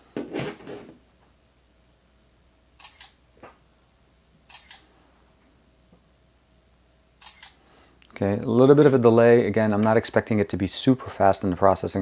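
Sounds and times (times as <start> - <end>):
phone camera shutter clicks: 2.8 - 3.2, 4.5 - 4.9, 7.2 - 7.6.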